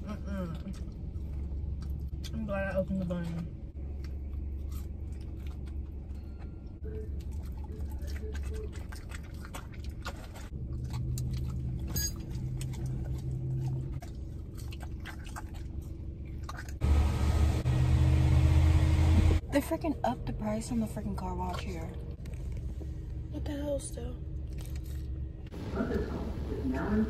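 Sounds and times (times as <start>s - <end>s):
chewing and food rustling: 0.5s - 2.4s, 3.3s - 16.8s, 24.4s - 25.5s
car engine idling: 16.8s - 21.3s.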